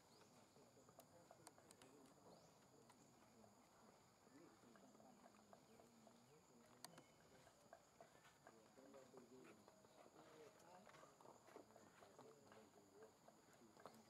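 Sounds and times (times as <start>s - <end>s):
soft ticks: 0.9s - 2.2s, 4.8s - 9.8s.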